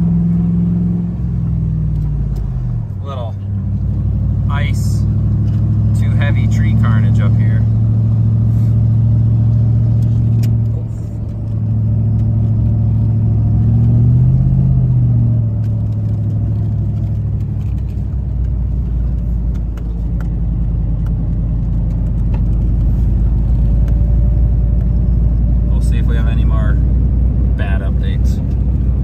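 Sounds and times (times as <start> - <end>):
truck engine hum: 0.0 - 29.0
tyre rumble on gravel road: 10.0 - 25.7.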